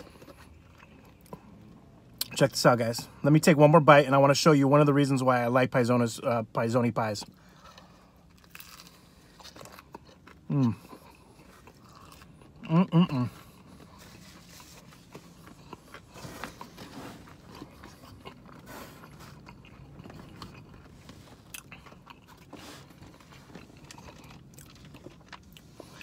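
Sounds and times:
chewing food: 0.0 - 3.2, 7.2 - 26.0.

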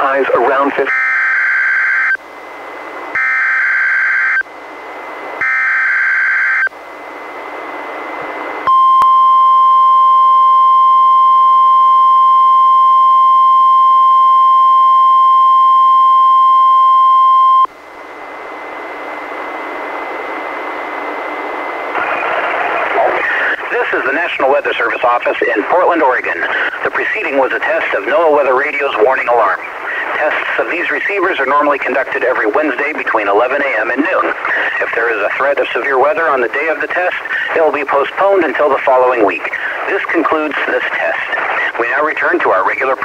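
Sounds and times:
radio hiss: 0.0 - 0.9, 18.8 - 43.0
steady warning alarm tone: 0.8 - 2.3, 3.1 - 4.5, 5.4 - 7.4, 8.7 - 17.7.

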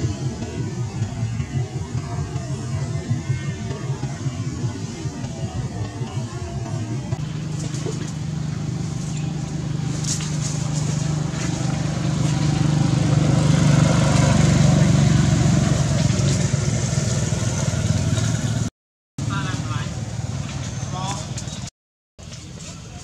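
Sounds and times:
vehicle engine passing by: 7.2 - 21.7.

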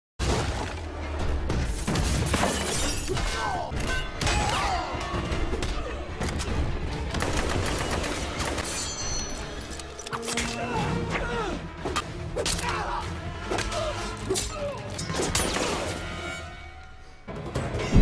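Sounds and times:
background music: 0.2 - 18.0
gunshots: 1.5 - 9.1.

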